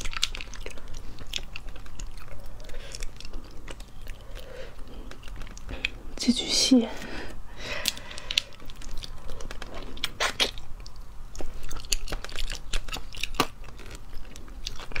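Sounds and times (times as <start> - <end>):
snail shells clicking: 0.0 - 6.0
chewing: 0.0 - 6.2, 7.7 - 15.0.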